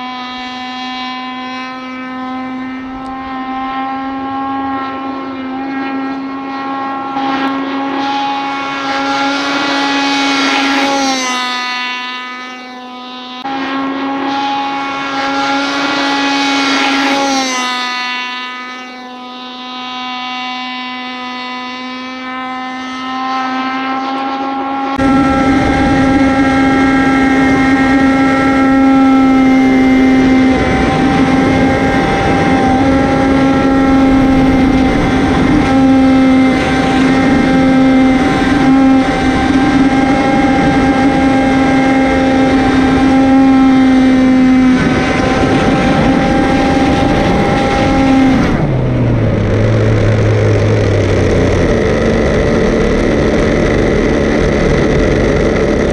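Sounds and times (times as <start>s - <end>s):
rc boat engine high pitch: 0.0s - 55.9s
water and wind rush: 24.9s - 55.9s.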